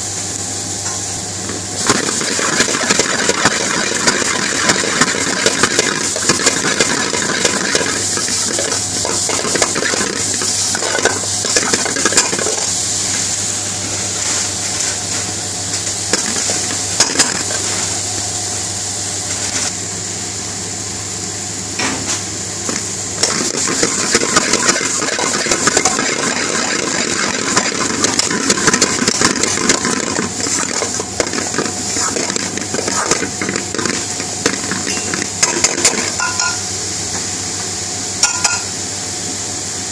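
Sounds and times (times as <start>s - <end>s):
vegetables sizzling in a pan: 1.8s - 15.2s, 15.8s - 18.2s, 22.6s - 37.6s.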